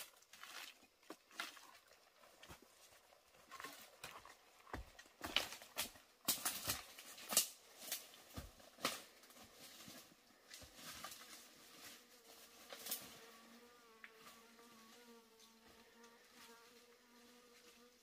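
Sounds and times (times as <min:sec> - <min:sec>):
footsteps crunching dry leaves: 0:03.5 - 0:13.2
insect buzzing: 0:11.1 - 0:18.0.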